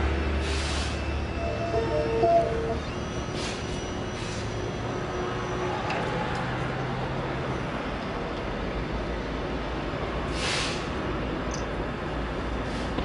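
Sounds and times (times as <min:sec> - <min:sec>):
antenna motor hum: 0:01.2 - 0:03.2.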